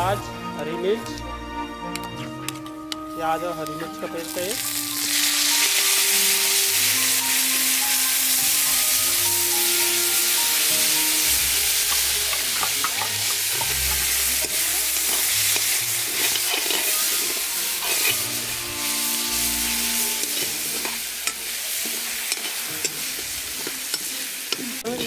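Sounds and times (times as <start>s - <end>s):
paste sizzling in hot oil: 2.6s - 25.0s
metal ladle scraping pan: 11.7s - 24.1s.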